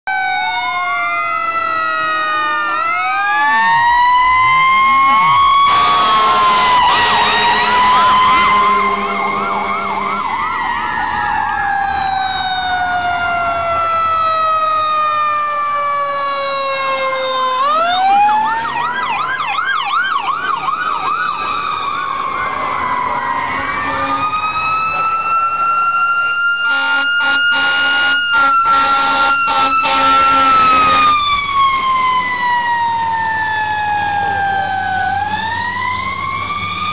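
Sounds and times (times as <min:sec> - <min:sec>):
fire engine sirens wailing: 0:00.1 - 0:36.9
siren yelping warbles: 0:00.1 - 0:36.9
broad horn blast: 0:03.3 - 0:10.6, 0:23.5 - 0:24.4, 0:26.6 - 0:31.1.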